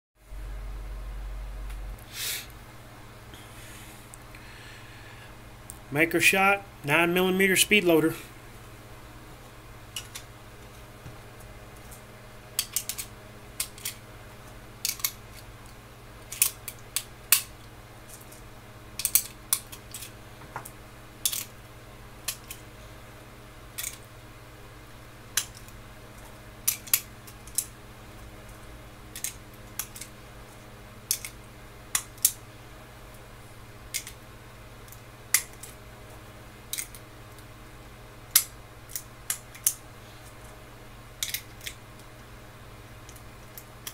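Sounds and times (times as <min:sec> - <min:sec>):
cartridges clicking into magazine: 0:41.2 - 0:41.8.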